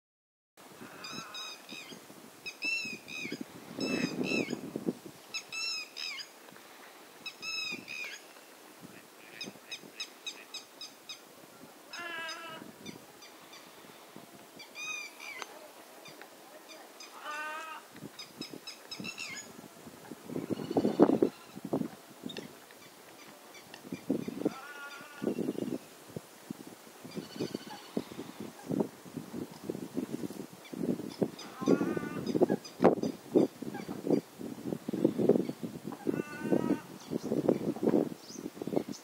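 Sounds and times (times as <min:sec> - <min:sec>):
birds alarm calls: 0:00.8 - 0:04.6, 0:05.3 - 0:06.3, 0:07.2 - 0:08.3, 0:11.9 - 0:13.8, 0:14.6 - 0:19.5, 0:27.1 - 0:28.7, 0:30.6 - 0:34.3, 0:35.4 - 0:37.4.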